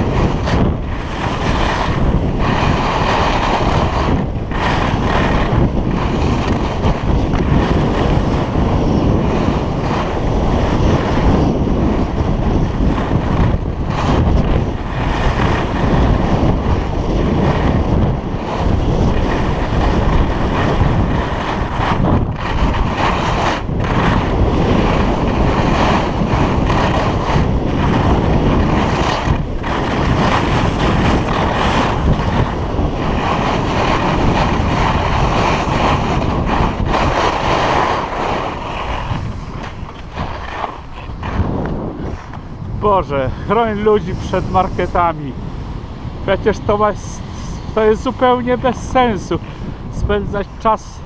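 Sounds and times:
wind buffeting microphone: 0.0s - 51.0s
skis hissing on snow: 0.2s - 6.5s, 18.4s - 42.3s, 43.2s - 45.3s.

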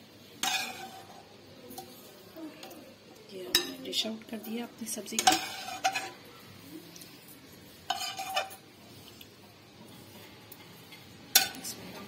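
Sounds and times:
spoon scraping a bowl: 0.4s - 1.2s, 5.2s - 6.2s, 7.9s - 8.6s.

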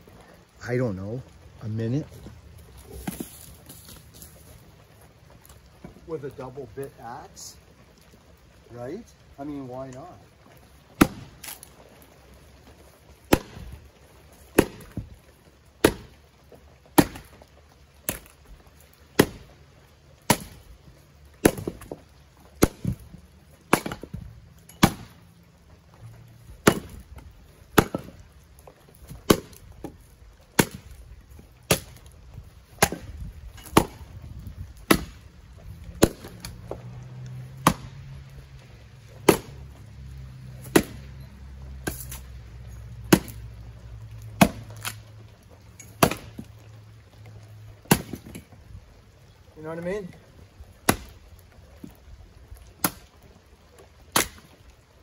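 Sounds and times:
axe chopping firewood: 2.8s - 4.3s, 10.9s - 11.8s, 12.6s - 16.2s, 16.9s - 18.4s, 19.1s - 19.5s, 20.2s - 25.2s, 26.5s - 36.9s, 37.6s - 38.2s, 39.2s - 39.8s, 40.5s - 41.2s, 41.8s - 42.4s, 43.0s - 43.5s, 44.4s - 45.1s, 45.8s - 46.5s, 47.8s - 48.6s, 50.8s - 52.0s, 52.6s - 53.2s, 54.1s - 54.6s.

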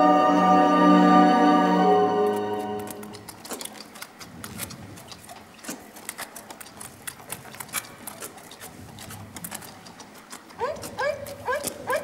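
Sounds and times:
orchestral string music: 0.0s - 3.2s.

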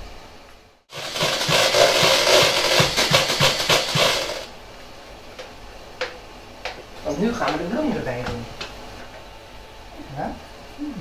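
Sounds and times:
music with steady drum beat: 0.9s - 4.5s.

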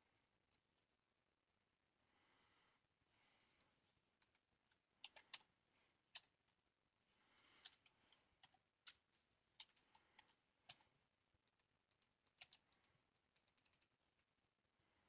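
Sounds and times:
computer keyboard and mouse clicks: 3.5s - 5.5s, 7.5s - 14.0s.

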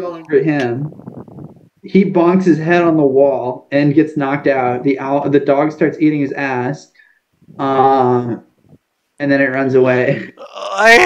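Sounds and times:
person's drawn-out vocal sound: 10.2s - 11.0s.

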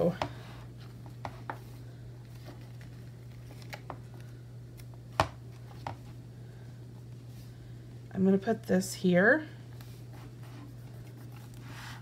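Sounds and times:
low steady hum: 0.0s - 12.0s
paper rustling: 0.8s - 4.4s.

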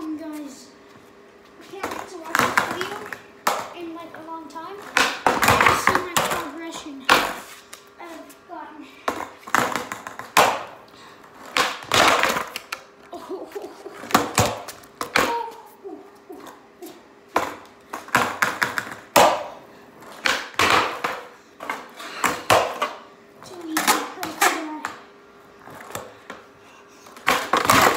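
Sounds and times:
skateboard wheels rolling on concrete: 0.1s - 27.9s
skateboard deck clacks and slaps: 4.9s - 6.5s, 9.1s - 10.7s, 11.5s - 12.8s, 14.0s - 15.4s, 17.4s - 19.5s, 20.2s - 23.0s, 23.7s - 25.0s, 27.2s - 27.9s.

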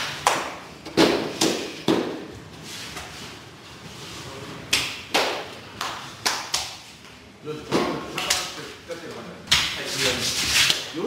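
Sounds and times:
sharp hand slaps: 4.7s - 6.8s.

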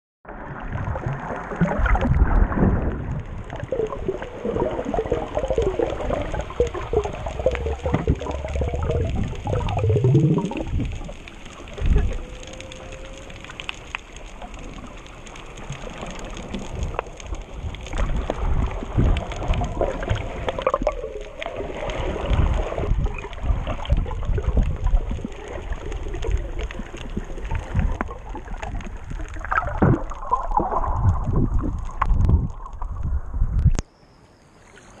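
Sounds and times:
water churning and gurgling: 0.2s - 33.8s.

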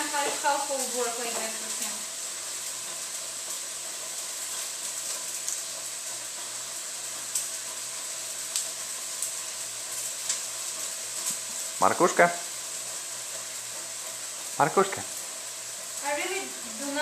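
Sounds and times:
onions sizzling in a pan: 0.0s - 17.0s.

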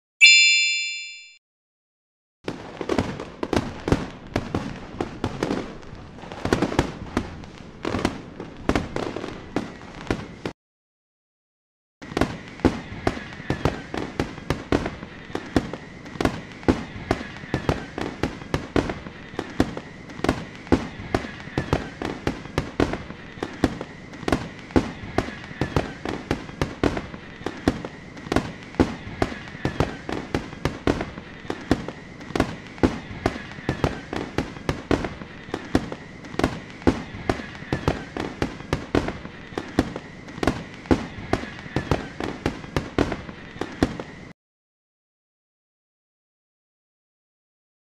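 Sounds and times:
faint high tone: 0.2s - 1.4s
fireworks bangs and crackling pops: 2.4s - 10.6s, 12.0s - 44.4s.

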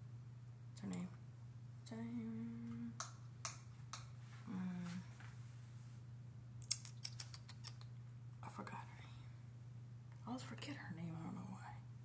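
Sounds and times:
low electrical hum: 0.0s - 12.0s
woman humming: 1.8s - 3.0s, 4.5s - 5.1s.

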